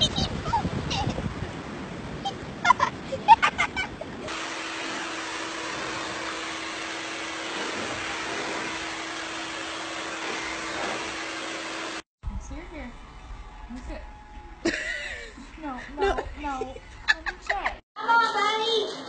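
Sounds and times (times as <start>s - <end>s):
pet blower dryer running: 4.3s - 12.1s.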